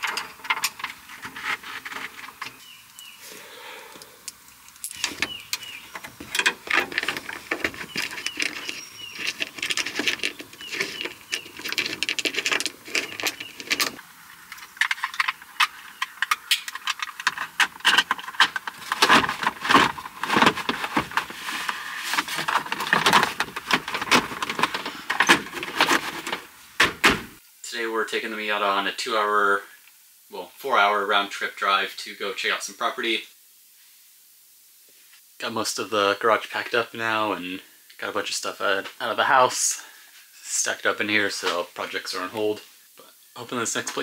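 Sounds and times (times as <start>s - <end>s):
metallic clinking and rattling: 0.0s - 2.6s, 4.3s - 21.2s.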